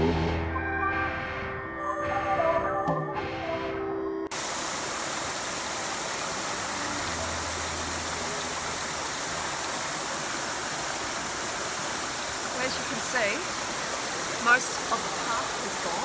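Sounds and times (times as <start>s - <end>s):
stream running over rocks: 4.3s - 16.0s.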